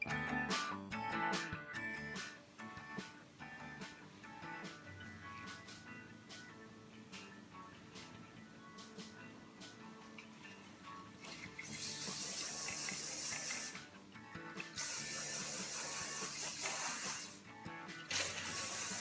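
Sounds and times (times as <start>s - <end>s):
aerosol can spraying: 11.6s - 13.8s, 14.7s - 17.4s, 18.1s - 19.0s.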